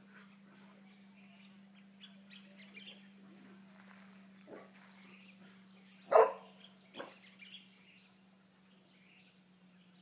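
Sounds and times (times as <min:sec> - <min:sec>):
steady low hum: 0:00.0 - 0:10.0
dog barking: 0:04.5 - 0:04.7, 0:06.1 - 0:07.2.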